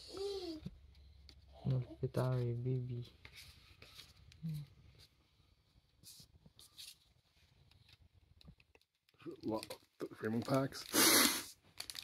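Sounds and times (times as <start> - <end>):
cards rustling and tapping: 7.6 - 11.0.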